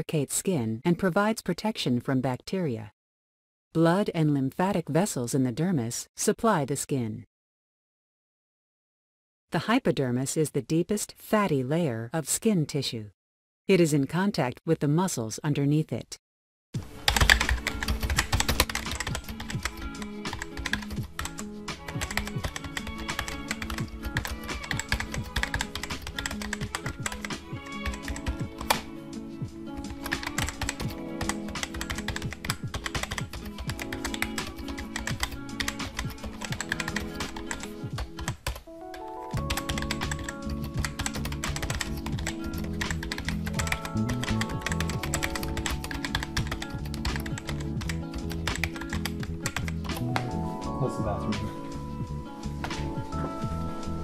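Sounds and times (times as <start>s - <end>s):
background music with sustained tones: 16.8s - 54.0s
rapid keyboard typing clicks: 17.0s - 28.9s, 29.8s - 50.2s.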